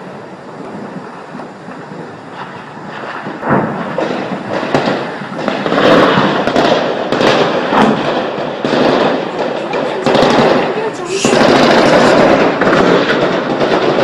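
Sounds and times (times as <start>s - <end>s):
small-arms gunfire: 3.5s - 14.0s.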